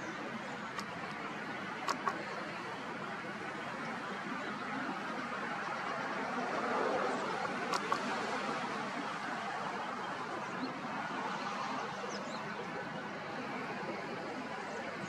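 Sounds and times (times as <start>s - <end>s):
outdoor background noise: 0.0s - 15.0s
faint clicks: 0.7s - 1.2s.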